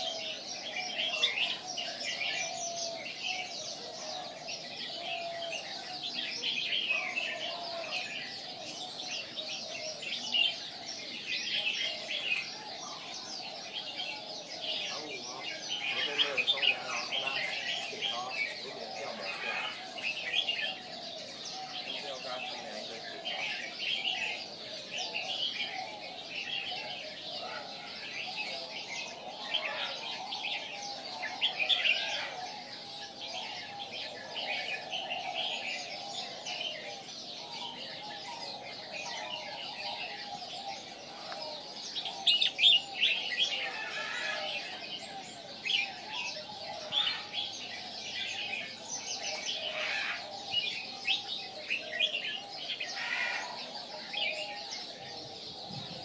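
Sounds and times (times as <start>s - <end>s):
bird chirping and singing: 0.0s - 56.0s
other birds calling: 0.0s - 56.0s.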